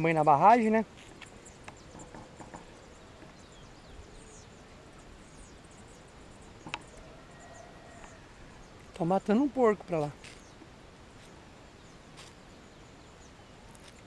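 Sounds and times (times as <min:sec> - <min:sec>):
distant bird chirps: 0:00.0 - 0:14.0.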